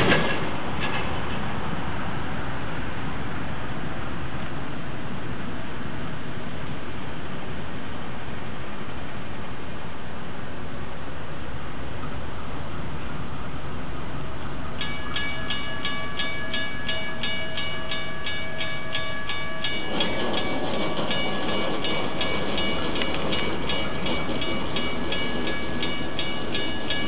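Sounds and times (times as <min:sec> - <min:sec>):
train engine and wheel rumble: 0:00.0 - 0:27.0
bell ringing: 0:14.8 - 0:27.0.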